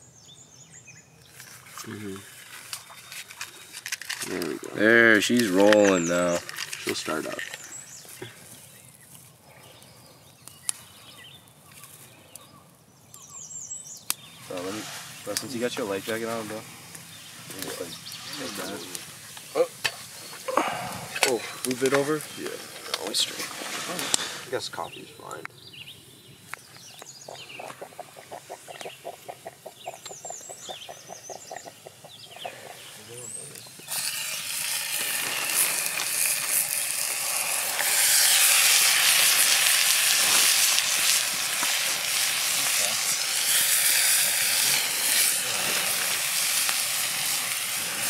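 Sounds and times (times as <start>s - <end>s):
songbirds chirping: 0.0s - 37.3s
small fire burning faintly: 1.2s - 48.0s
sharp snaps of twigs: 10.4s - 12.5s, 14.0s - 14.7s
percolator coffee pot gurgling: 33.8s - 48.0s.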